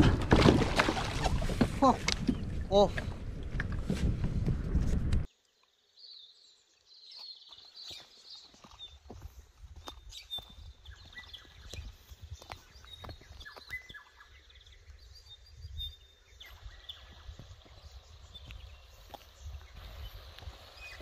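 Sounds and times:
birds chirping and whistling: 10.0 - 21.0.

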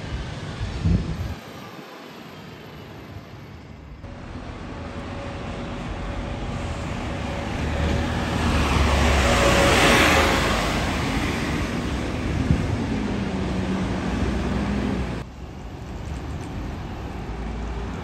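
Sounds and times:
bus engine rumble passing: 4.1 - 18.0.

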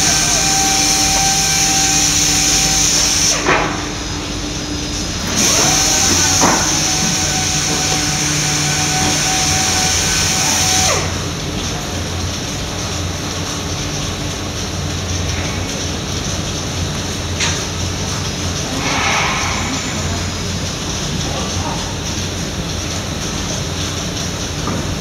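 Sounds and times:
loud high hiss: 0.0 - 11.2, 18.4 - 22.0
machine motor hum: 0.0 - 14.1.

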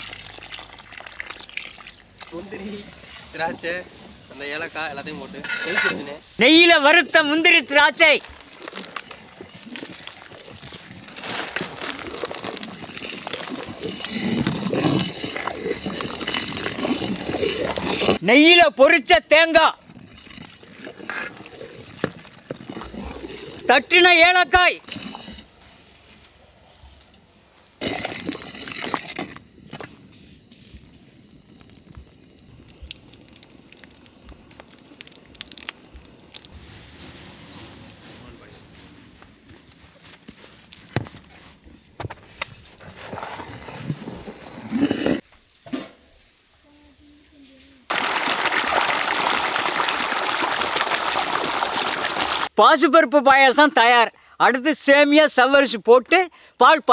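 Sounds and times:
nuts crackling dropped into pot: 8.2 - 14.1
ladle stirring liquid: 9.0 - 18.2.

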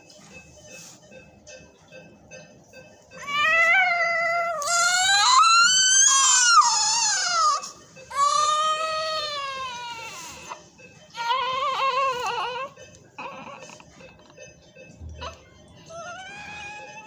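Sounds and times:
newborn baby crying: 3.2 - 13.8, 15.2 - 17.0.

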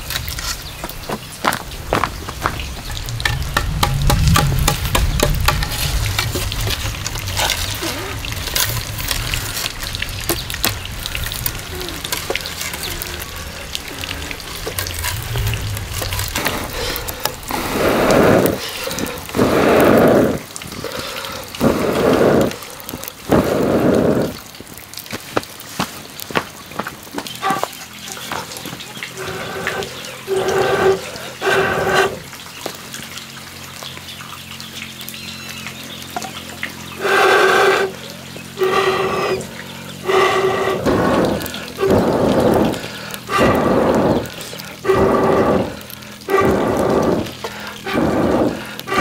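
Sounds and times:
firewood crackling and popping: 0.0 - 49.0
low rumble: 1.4 - 24.4, 36.6 - 49.0
breath blown into embers: 10.6 - 24.4, 29.2 - 32.3, 37.0 - 38.0, 38.6 - 49.0.

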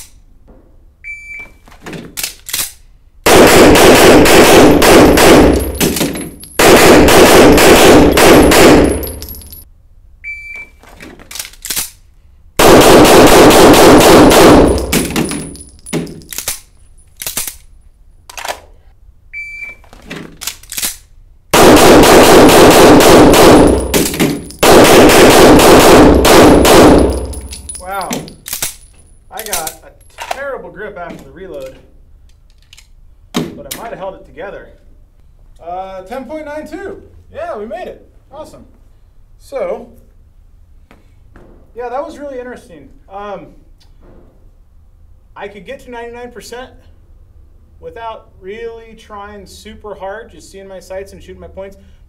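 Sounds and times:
rapid pistol fire: 3.2 - 9.3, 12.6 - 15.6, 21.5 - 27.5.

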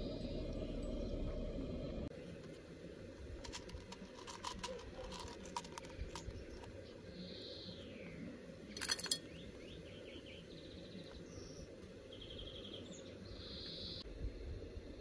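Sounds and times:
small birds chirping: 5.2 - 14.0.

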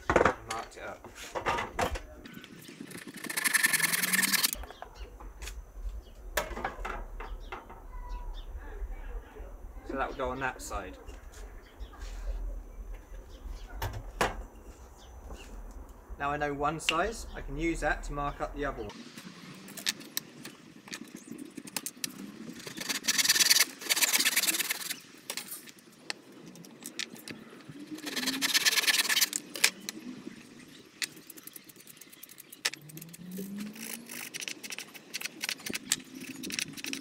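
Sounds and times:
wood and tools knocking: 0.0 - 2.1, 6.4 - 7.9
hand saw cutting wood: 2.9 - 4.6, 22.6 - 25.0, 28.0 - 29.5.

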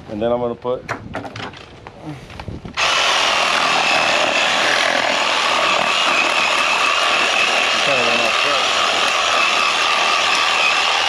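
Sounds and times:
electric bone saw running: 2.8 - 11.0.

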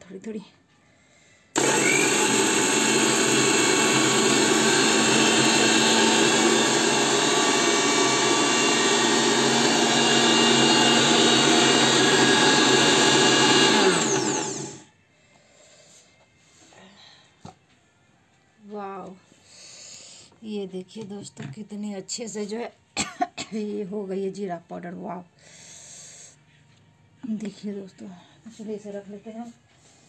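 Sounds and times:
mixer grinder motor running: 1.6 - 14.9.

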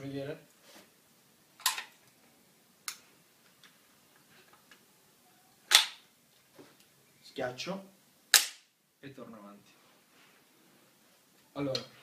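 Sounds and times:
loud snap: 5.7 - 6.0, 8.3 - 8.7.

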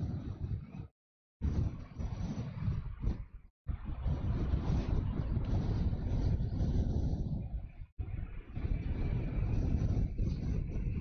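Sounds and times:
jet engine rumble: 0.0 - 11.0.

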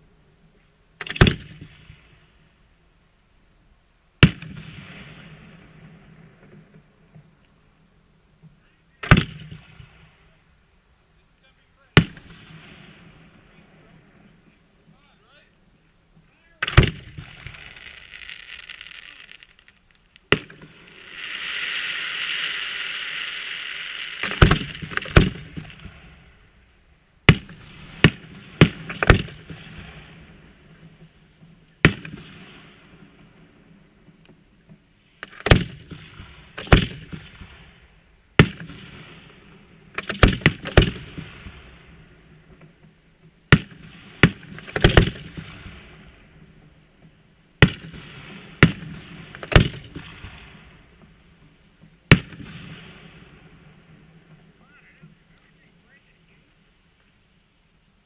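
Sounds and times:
firework shells bursting: 12.0 - 13.4, 16.1 - 33.4, 34.0 - 53.2
firework hiss: 16.6 - 26.8, 27.4 - 30.5.

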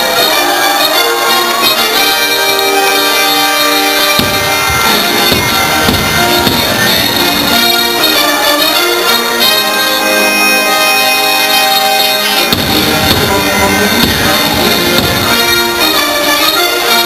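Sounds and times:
orchestral music with held chords: 0.0 - 17.0
deep booming: 4.1 - 7.8, 12.5 - 15.8.

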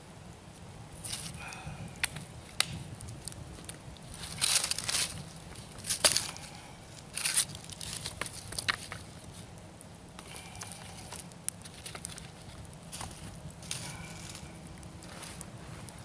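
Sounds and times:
fire crackling pops: 0.2 - 16.0
wood scraping and rustling: 3.5 - 9.5.

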